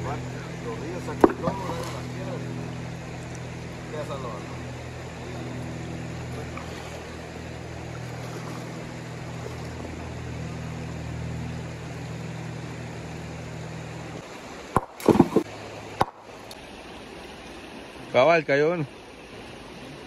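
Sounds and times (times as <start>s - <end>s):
low hum: 0.0s - 18.1s
river water flowing: 0.0s - 20.0s
rock slamming onto boulder: 14.8s - 15.5s.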